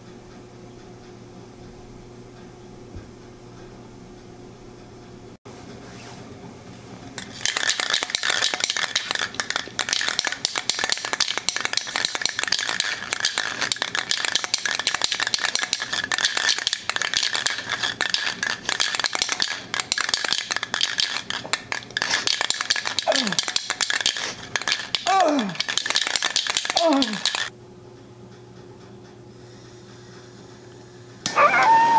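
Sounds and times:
spray can rattling when shaken: 7.2s - 27.5s.

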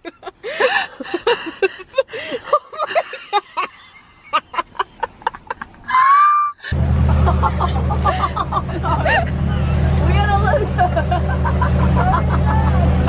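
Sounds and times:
people laughing: 0.0s - 13.0s
boat engine droning: 6.7s - 13.0s.

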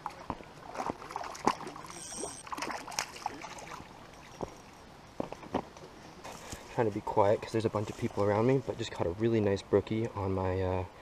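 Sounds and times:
fish splashing in water: 0.0s - 4.6s.

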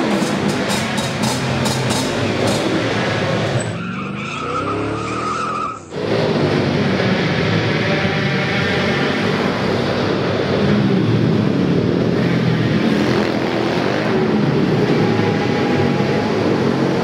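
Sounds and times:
pitbike engines running: 0.0s - 3.7s.

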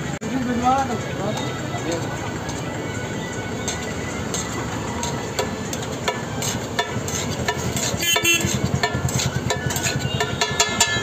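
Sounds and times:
metal spatula scraping a griddle: 3.6s - 11.0s.

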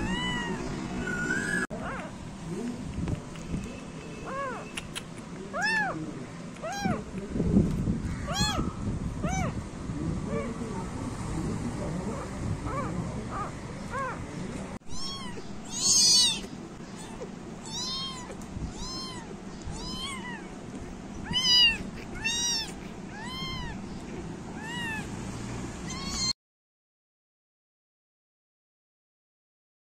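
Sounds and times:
kitten mewing: 0.0s - 0.7s, 4.2s - 6.0s, 6.6s - 7.2s, 8.1s - 9.6s, 12.7s - 14.3s, 14.9s - 20.6s, 21.2s - 23.9s, 24.5s - 25.1s, 25.8s - 26.3s.

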